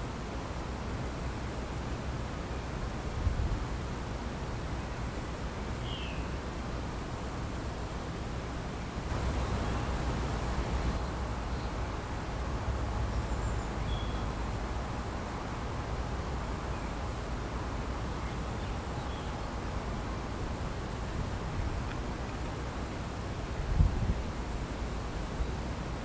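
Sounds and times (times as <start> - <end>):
insects buzzing: 0.0 - 26.0
low rumble and hiss: 0.0 - 26.0
faint bird chirps: 5.8 - 6.4, 13.2 - 14.3.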